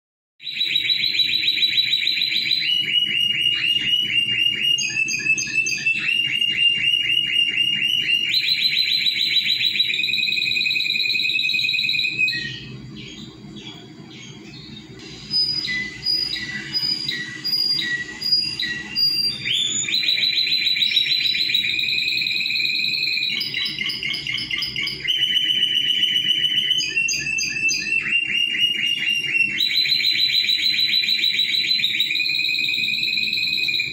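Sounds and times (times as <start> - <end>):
canary singing: 0.4 - 33.9.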